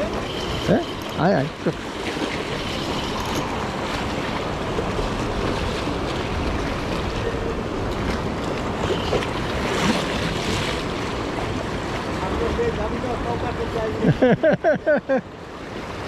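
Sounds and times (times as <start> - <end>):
ocean surf washing on beach: 0.0 - 16.0.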